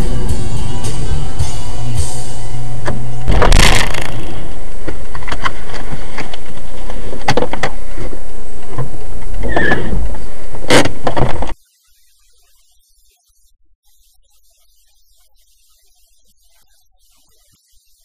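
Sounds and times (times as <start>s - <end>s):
road and engine noise: 0.0s - 11.5s.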